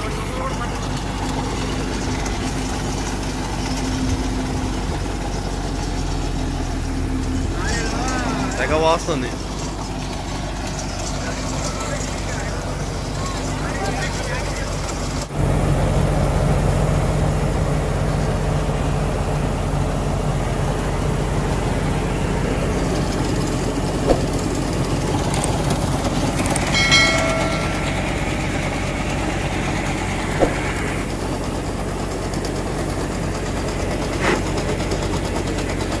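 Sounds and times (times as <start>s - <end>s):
machinery engine drone: 0.0s - 36.0s
sharp knocks: 24.0s - 24.5s, 30.3s - 31.0s
grain pouring into trailer: 28.0s - 36.0s.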